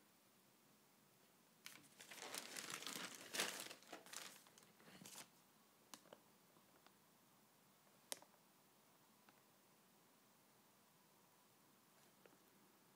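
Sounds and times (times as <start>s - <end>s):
plastic mailer bag crinkling: 1.7s - 5.3s.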